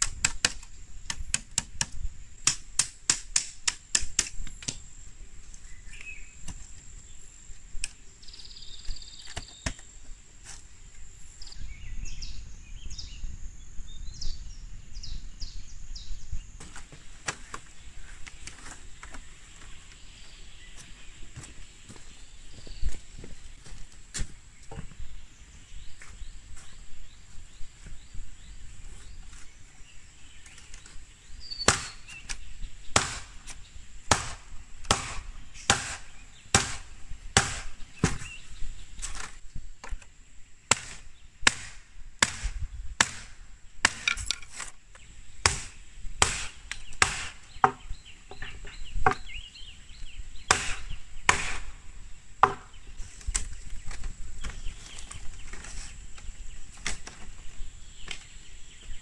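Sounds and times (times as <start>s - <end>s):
blade chopping bamboo: 31.6s - 32.0s, 34.1s - 38.2s, 40.7s - 44.7s, 45.4s - 47.8s, 50.5s - 51.6s.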